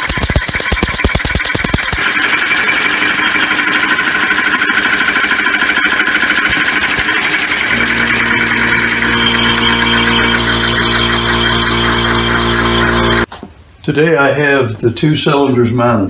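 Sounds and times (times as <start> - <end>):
air motor hissing rattle: 0.0 - 13.3
steady low hum: 3.1 - 13.3.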